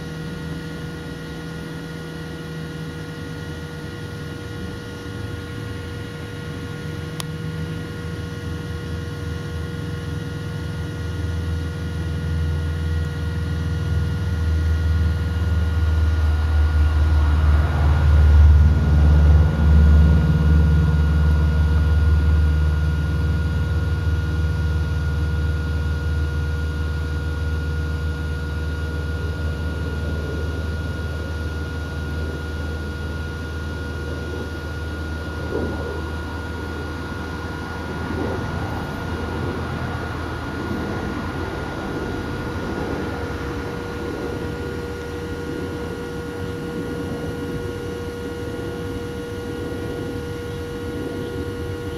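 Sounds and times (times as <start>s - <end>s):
faint steady hum: 0.0s - 51.9s
low engine rumble passing by: 11.2s - 26.2s, 27.4s - 51.9s.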